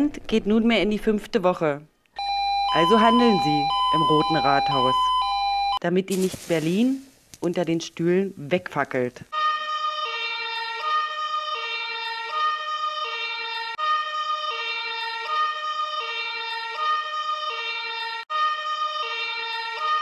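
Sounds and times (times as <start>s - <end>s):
two-tone emergency siren: 2.2s - 5.8s, 9.3s - 20.0s.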